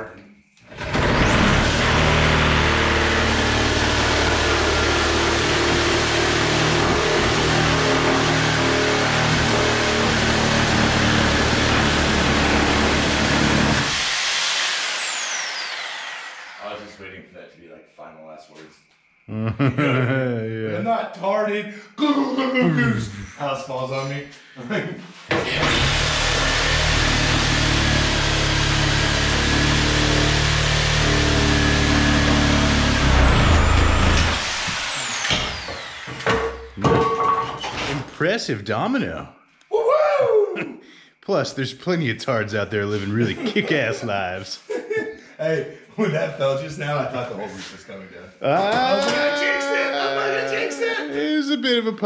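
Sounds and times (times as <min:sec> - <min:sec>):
reciprocating saw cutting wood: 0:00.7 - 0:17.0, 0:25.3 - 0:36.8
motor winding down whine: 0:10.0 - 0:17.0, 0:25.4 - 0:36.5.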